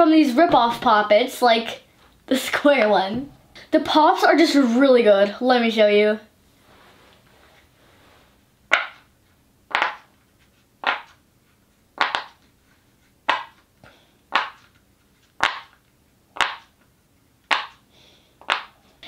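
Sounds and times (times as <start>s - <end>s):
silicone fidget toy pops: 12.0s - 12.4s, 16.4s - 16.7s, 17.5s - 17.8s, 18.4s - 18.7s.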